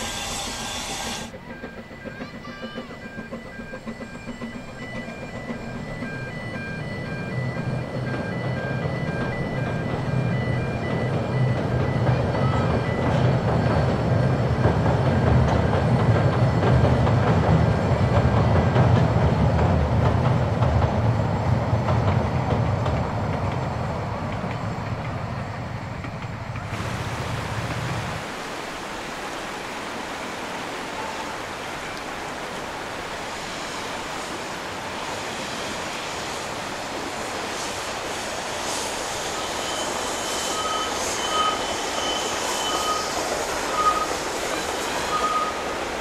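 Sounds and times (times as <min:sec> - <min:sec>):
steam train rumbling over bridge: 0:00.0 - 0:46.0
river rushing over rocks: 0:26.7 - 0:39.4.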